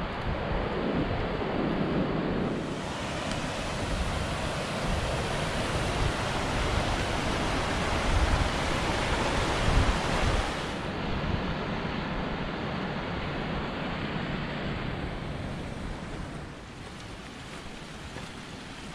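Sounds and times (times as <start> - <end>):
wind buffeting the microphone: 0.0 - 18.9
creek rushing over rocks: 2.5 - 10.9.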